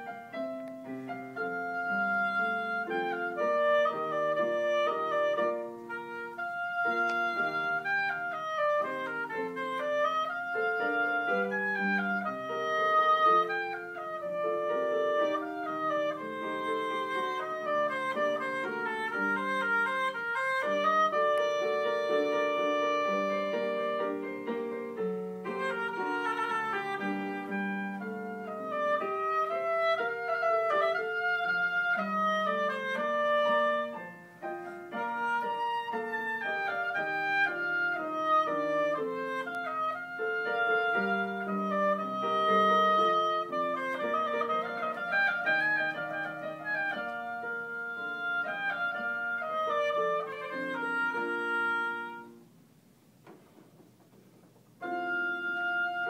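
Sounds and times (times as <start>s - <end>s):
oboe solo melody: 0.0s - 52.6s, 54.5s - 56.0s
piano accompaniment: 0.0s - 56.0s.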